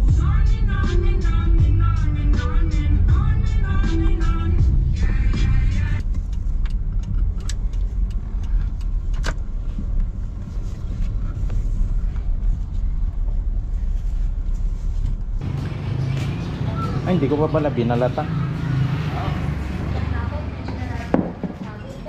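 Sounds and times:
background music: 0.0 - 6.0, 15.4 - 19.9
car engine and tyres rumbling: 0.0 - 22.0.

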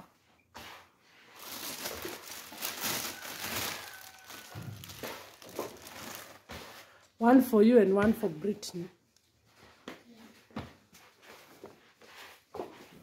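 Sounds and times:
plastic bag crinkling: 1.3 - 6.5.

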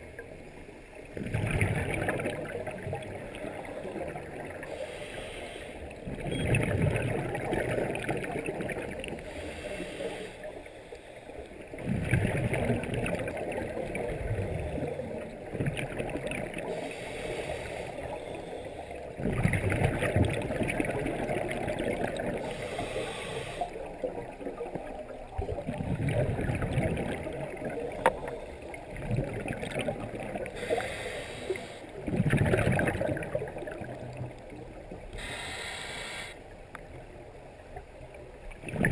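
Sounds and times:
underwater breathing: 4.6 - 6.0, 9.0 - 11.6, 16.6 - 19.2, 22.2 - 24.0, 30.4 - 32.1, 35.1 - 36.5.

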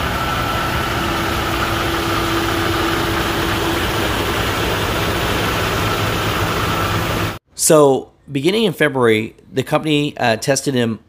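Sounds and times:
diesel engine idling: 0.0 - 7.4
high whine: 0.0 - 7.4
low hum: 0.0 - 7.4.

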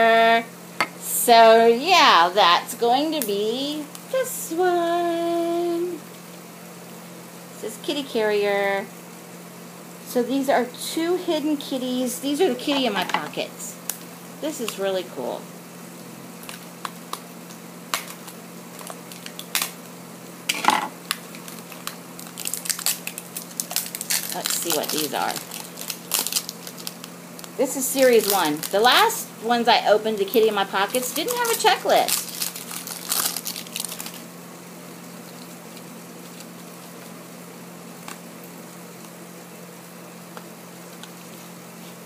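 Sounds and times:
steady low hum: 0.0 - 42.0
plastic crinkling: 16.4 - 20.0, 21.0 - 29.2, 30.0 - 34.3, 34.9 - 37.2.

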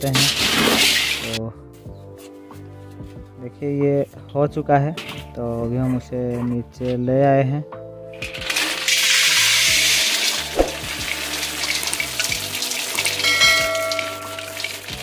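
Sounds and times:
seeds pouring into metal basin: 0.0 - 1.4, 8.2 - 13.2
background music: 0.0 - 15.0
bell-like chime: 13.2 - 14.6.

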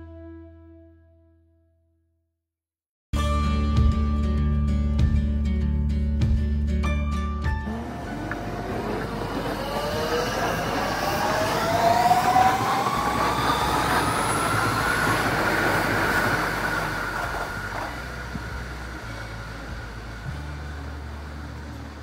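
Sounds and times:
electric train motor whine: 7.6 - 22.0
wheels rumbling on rail: 7.6 - 22.0.

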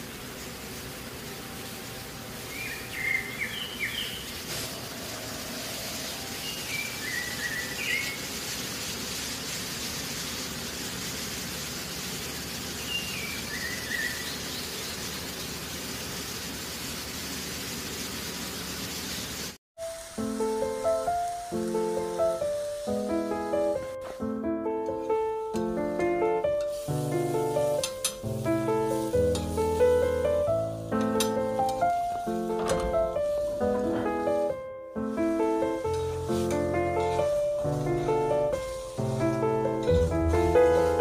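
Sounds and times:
outdoor background hiss: 0.0 - 41.0
birds chirping: 0.2 - 8.7, 12.4 - 15.7.

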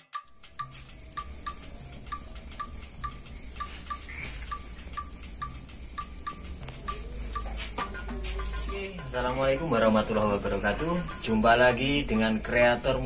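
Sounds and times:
high insect-like trill: 0.1 - 13.0
light ticks: 0.4 - 9.1.

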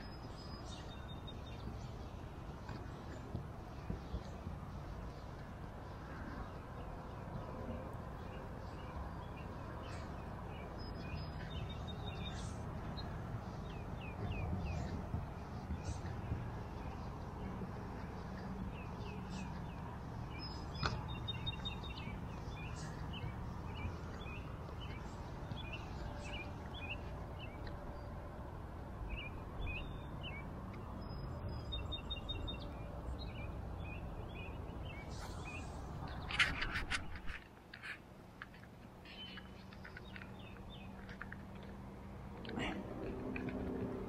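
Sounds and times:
small birds chirping: 0.0 - 28.0, 29.1 - 43.8.

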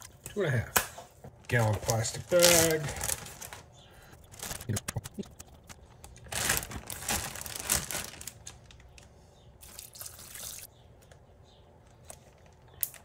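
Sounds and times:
plastic bag crinkling: 1.4 - 9.0.

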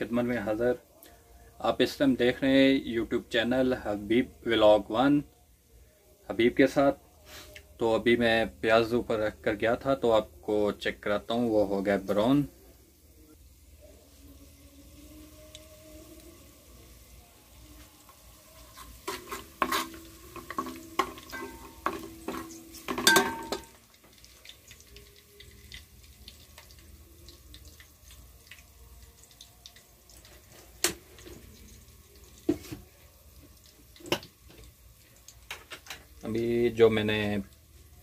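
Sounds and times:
oil sizzling: 6.3 - 38.0
metal spoon scraping pot: 18.7 - 23.7.

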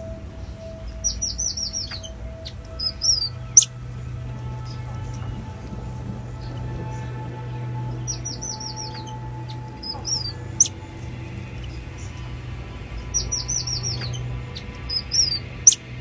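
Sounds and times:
high-pitched chirping calls: 0.0 - 16.0
low background music drone: 0.0 - 16.0
sharp rising whistle: 0.0 - 16.0.

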